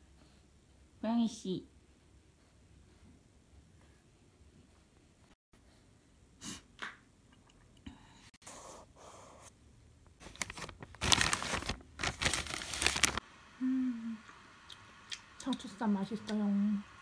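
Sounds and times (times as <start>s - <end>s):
plastic bag crinkling: 10.2s - 13.2s.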